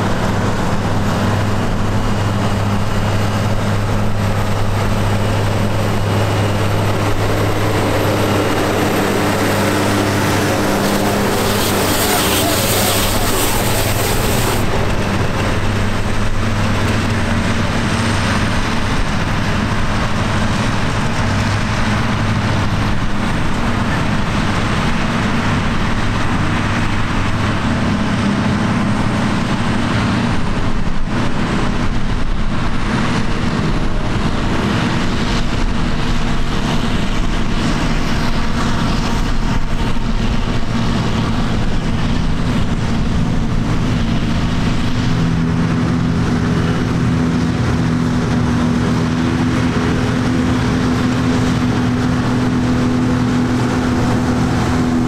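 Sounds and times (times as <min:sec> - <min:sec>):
forage harvester harvesting grass: 0:00.0 - 0:55.0
tractor with round baler: 0:00.0 - 0:55.0
thin high whine: 0:10.2 - 0:14.7.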